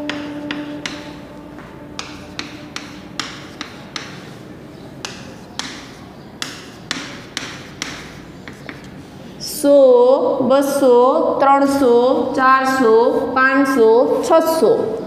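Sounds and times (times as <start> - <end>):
chalk tapping on a blackboard: 0.0 - 9.2.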